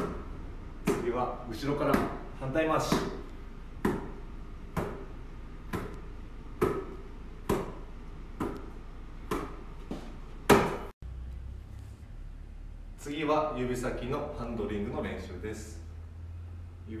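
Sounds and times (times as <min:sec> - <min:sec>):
basketball slapping into palms: 0:02.8 - 0:10.9.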